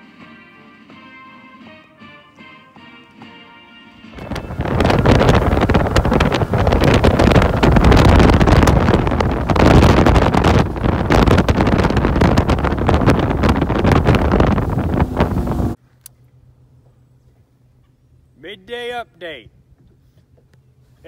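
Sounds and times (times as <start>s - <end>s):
boat hull and motor rushing: 4.1s - 15.8s
wind noise on microphone: 4.1s - 15.8s.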